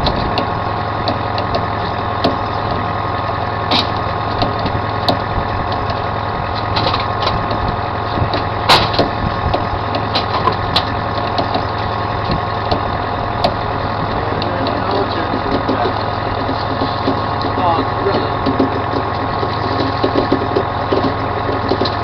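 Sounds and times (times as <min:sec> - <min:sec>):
boat engine running: 0:00.0 - 0:22.0
clicks and knocks: 0:08.2 - 0:13.6.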